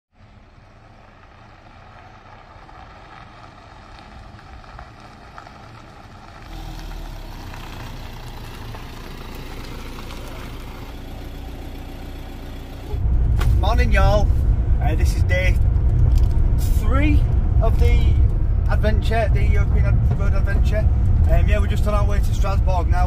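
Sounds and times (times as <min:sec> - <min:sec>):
van engine driving: 0:00.1 - 0:23.0.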